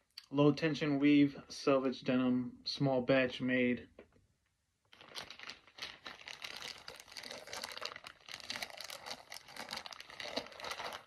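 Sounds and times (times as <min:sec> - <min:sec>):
plastic bag crinkling: 0:04.9 - 0:11.0.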